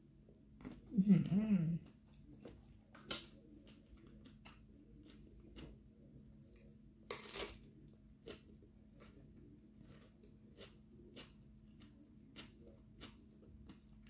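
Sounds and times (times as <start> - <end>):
soft chewing: 0.2 - 14.0
crunch of biting pepper: 7.1 - 7.6.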